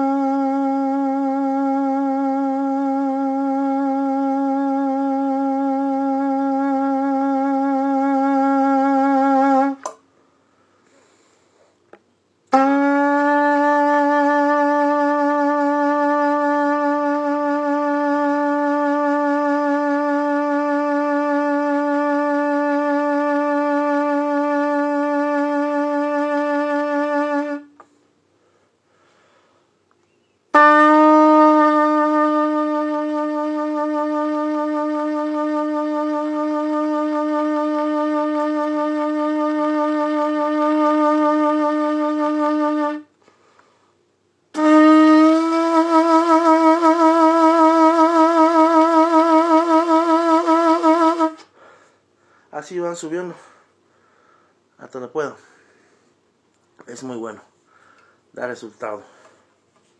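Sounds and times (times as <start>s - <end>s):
trumpet long tones: 0.0s - 10.0s, 12.4s - 27.9s, 30.5s - 43.2s, 44.5s - 53.6s.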